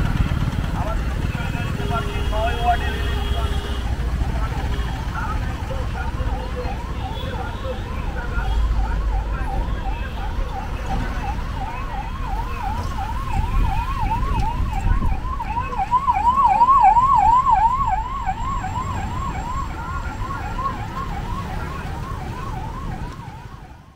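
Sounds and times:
level crossing warning siren wailing: 0:00.7 - 0:23.9.

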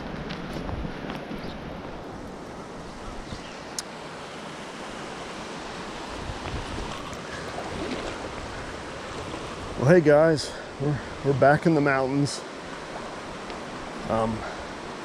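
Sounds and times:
wind buffeting microphone: 0:06.0 - 0:11.5.

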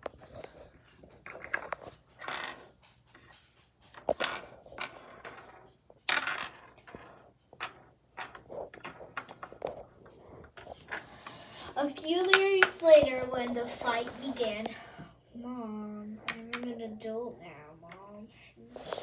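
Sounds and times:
plastic toys tapping on wooden table: 0:12.2 - 0:13.1, 0:16.2 - 0:16.7.

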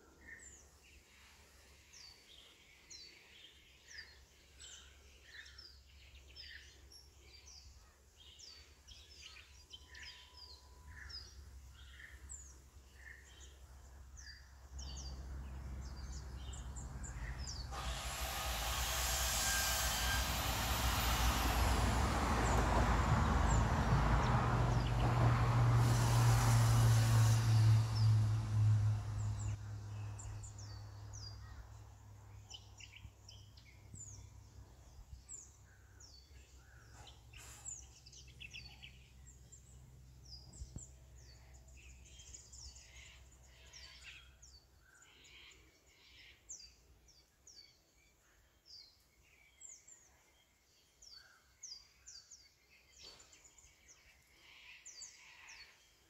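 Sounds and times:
birds chirping: 0:01.9 - 0:25.2
low engine hum: 0:13.3 - 0:35.2.

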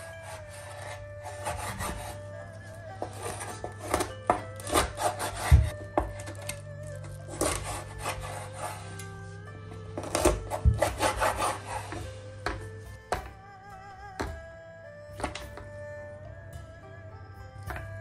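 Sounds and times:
knife cutting through chicken: 0:00.0 - 0:02.3, 0:03.0 - 0:09.2, 0:10.0 - 0:13.3
soft background music: 0:00.0 - 0:18.0.

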